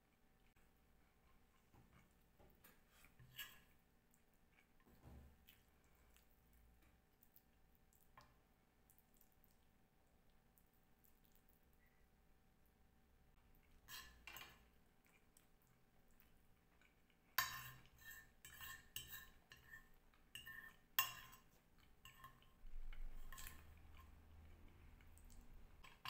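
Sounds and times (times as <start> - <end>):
cutlery clinking on a ceramic plate: 13.8 - 14.7, 17.4 - 24.1.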